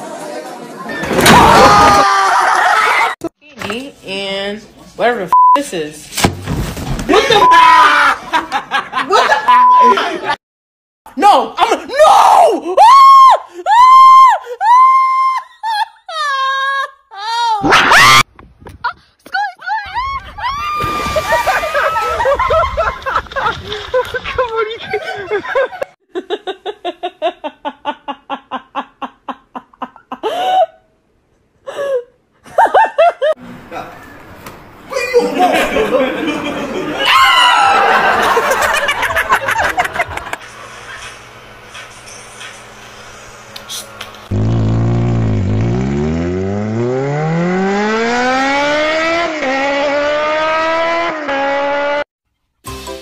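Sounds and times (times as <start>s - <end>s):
engine revving: 44.2s - 52.1s.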